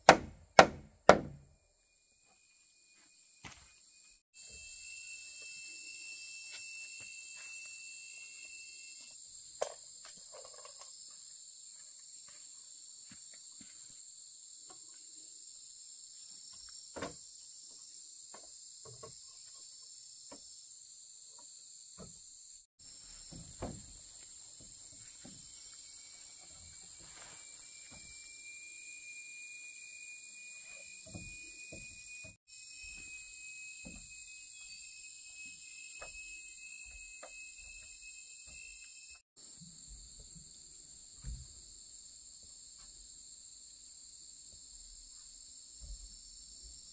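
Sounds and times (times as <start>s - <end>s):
high-pitched insect chorus: 1.9s - 46.9s.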